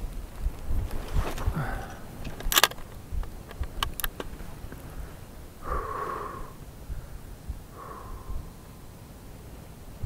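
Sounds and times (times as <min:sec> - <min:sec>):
light clicks: 0:00.1 - 0:04.9
person snorting through the nose: 0:01.4 - 0:02.1, 0:05.6 - 0:06.6.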